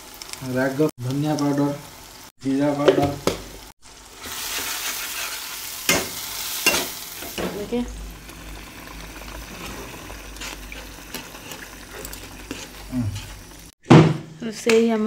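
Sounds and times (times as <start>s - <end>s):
spices sizzling in hot oil: 0.0s - 13.8s
spatula stirring and scraping: 4.2s - 13.8s.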